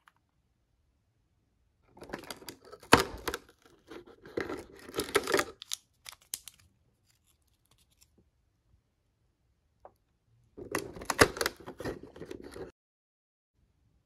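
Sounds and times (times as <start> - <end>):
wrapper crinkling: 2.0 - 8.2.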